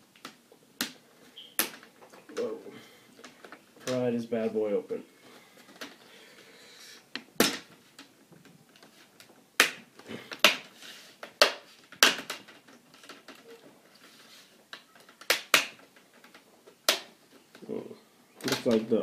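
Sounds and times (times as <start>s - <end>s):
plastic clips snapping loose: 14.7s - 17.2s.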